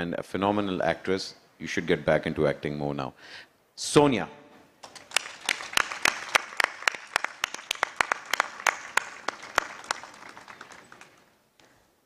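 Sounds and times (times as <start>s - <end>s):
audience applauding: 4.8s - 11.4s
loud single claps: 4.8s - 11.7s.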